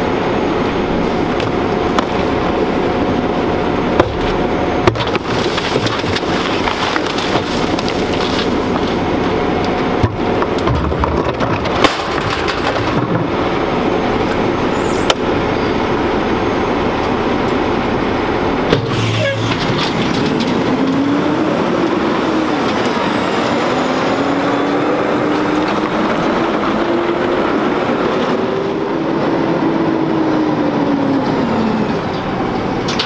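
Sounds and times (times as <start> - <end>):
diesel engine running: 0.0 - 33.0
trash cans banging on metal: 18.7 - 20.9.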